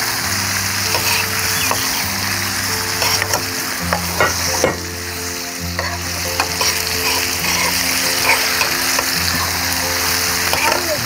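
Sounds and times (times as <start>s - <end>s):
food sizzling in a pan: 0.0s - 11.0s
utensil scraping a pan: 0.9s - 2.0s, 3.0s - 4.9s, 5.8s - 9.5s.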